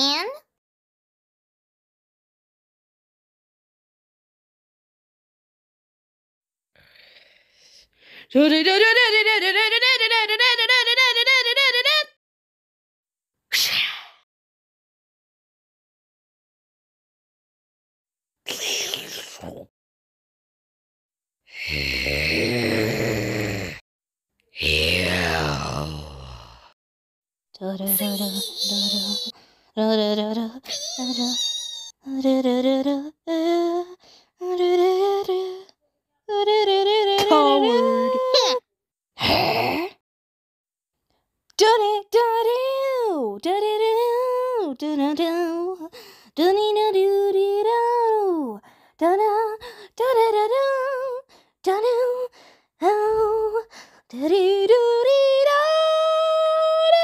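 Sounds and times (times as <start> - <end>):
person humming: 21.5 - 23.8, 24.5 - 26.7, 27.6 - 35.7, 36.3 - 38.6.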